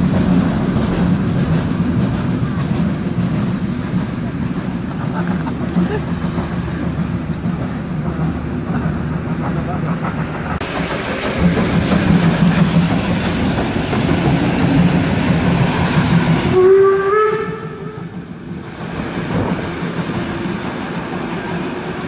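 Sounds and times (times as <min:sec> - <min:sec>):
steam locomotive hissing and rumbling: 0:00.0 - 0:22.0
train whistle blast: 0:16.5 - 0:18.1.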